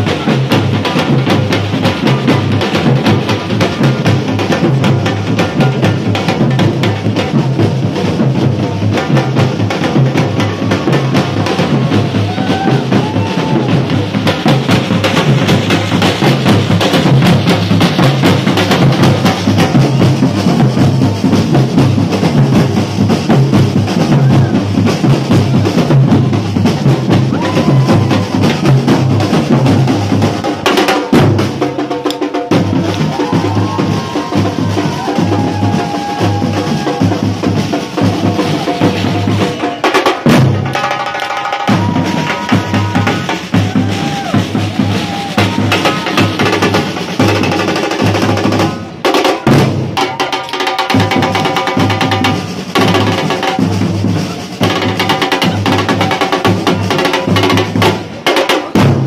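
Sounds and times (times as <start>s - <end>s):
samba drum band: 0.0s - 59.0s.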